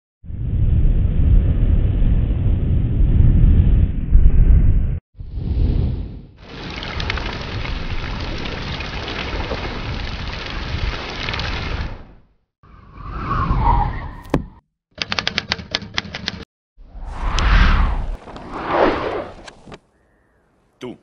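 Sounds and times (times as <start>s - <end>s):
typewriter key clacks: 15.0s - 16.4s
whoosh ending in click: 17.2s - 18.7s.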